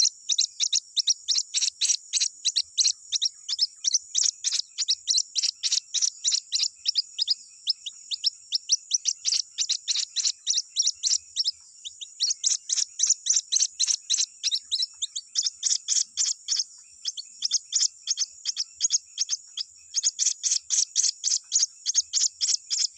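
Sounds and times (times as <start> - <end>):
chicks cheeping: 0.0 - 22.9.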